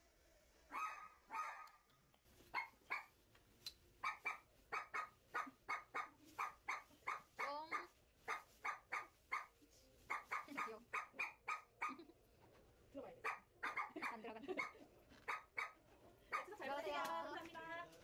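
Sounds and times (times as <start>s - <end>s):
dog barking: 0.7s - 1.8s, 2.5s - 3.2s, 4.0s - 12.1s, 13.2s - 16.6s.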